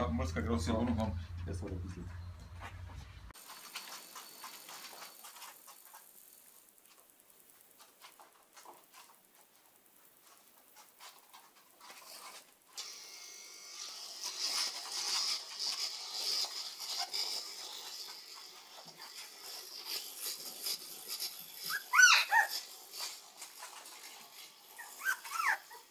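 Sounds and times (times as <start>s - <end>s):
claws ticking on floor: 3.4s - 12.7s.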